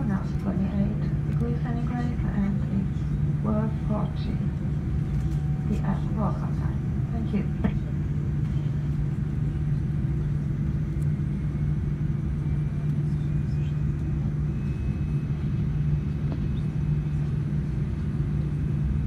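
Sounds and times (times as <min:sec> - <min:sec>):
low rumble of jet engines: 0:00.0 - 0:19.0
faint high whine: 0:00.4 - 0:19.0.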